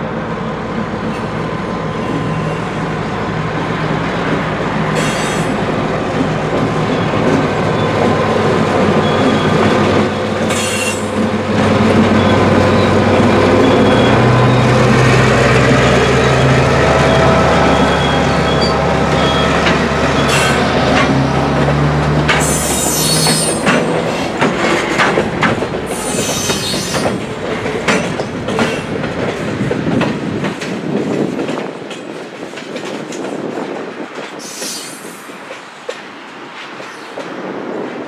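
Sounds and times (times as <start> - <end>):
diesel locomotive engine drone: 0.0 - 38.0
high-pitched wheel squeal: 16.0 - 20.6, 22.4 - 23.7.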